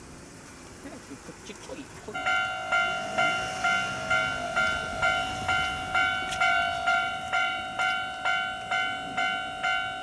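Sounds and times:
level crossing warning bell: 2.1s - 10.0s.

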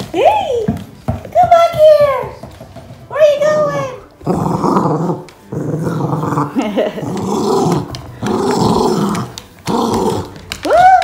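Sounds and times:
dog play-growling: 3.8s - 10.6s.

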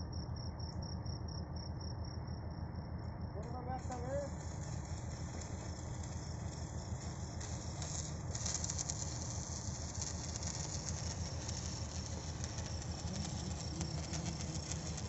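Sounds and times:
low engine drone: 2.5s - 15.0s
arc welding crackling hiss: 3.4s - 15.0s.

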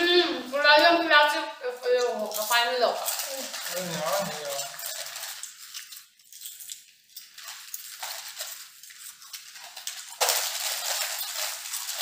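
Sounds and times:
plastic packets crinkling: 1.9s - 12.0s
packet rustling as pulled open: 2.9s - 12.0s.

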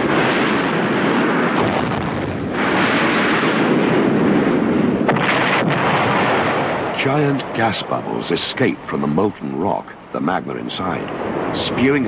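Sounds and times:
volcano exploding: 0.0s - 9.8s, 10.4s - 12.0s.

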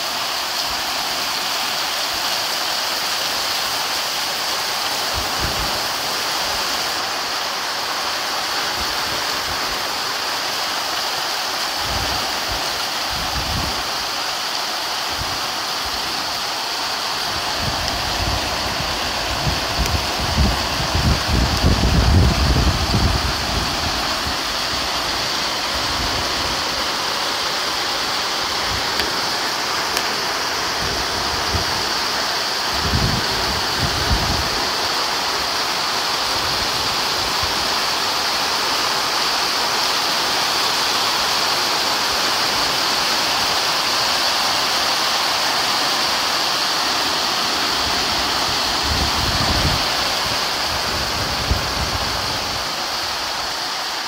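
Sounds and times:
heavy rain pouring: 0.0s - 54.0s
wind buffeting microphone: 17.3s - 25.2s, 32.7s - 34.8s, 47.8s - 52.8s.

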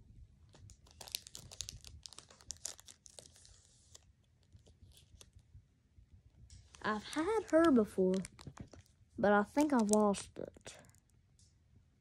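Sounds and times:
trading cards rustling: 0.8s - 5.3s, 6.6s - 10.8s.

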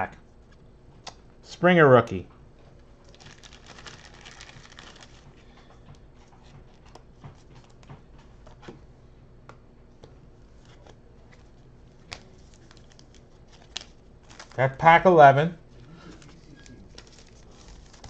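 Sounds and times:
trading cards rustling and tapping: 3.1s - 8.8s, 16.0s - 18.0s.

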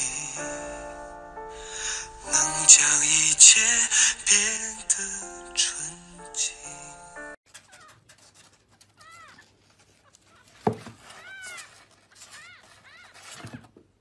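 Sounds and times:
kittens mewing: 9.0s - 13.5s.

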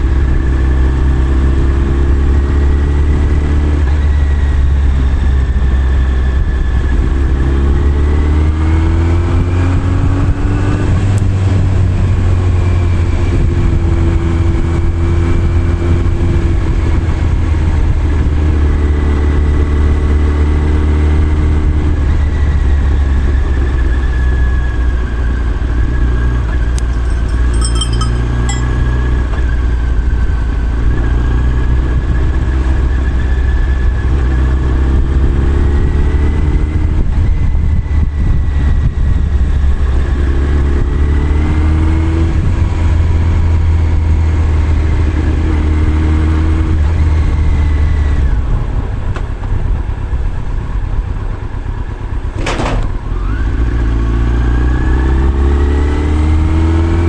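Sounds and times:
motorcycle engine running: 26.6s - 29.2s
brief high ringing: 26.8s - 29.0s
wind noise: 35.0s - 44.4s.

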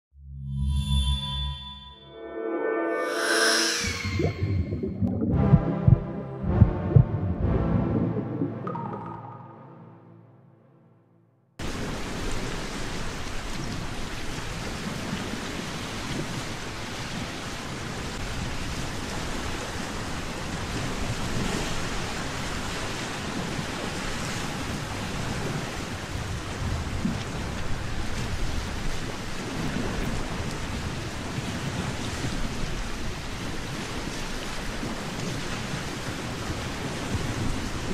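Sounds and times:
wind blowing: 3.0s - 9.9s.

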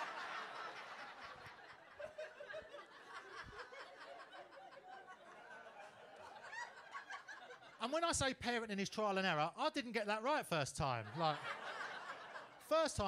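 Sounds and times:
audience laughing: 0.0s - 7.8s, 10.9s - 13.0s.

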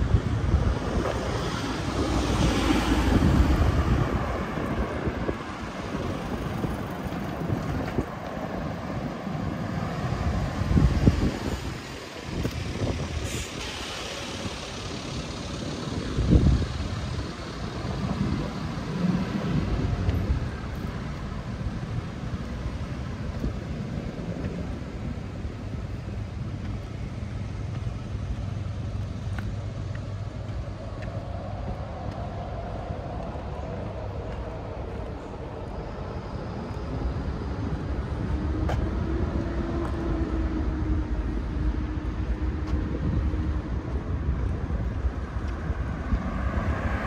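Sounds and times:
traffic hum: 0.0s - 47.0s
trucks passing close by: 0.0s - 47.0s.

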